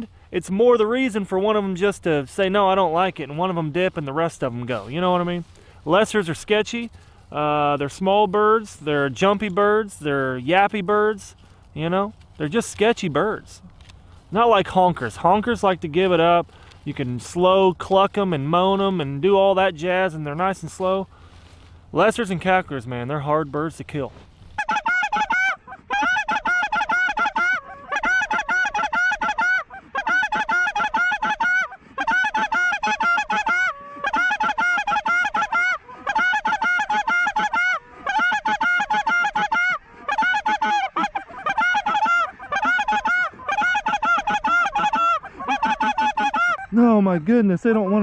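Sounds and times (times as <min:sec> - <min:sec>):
flock of geese cackling: 0:24.5 - 0:48.0.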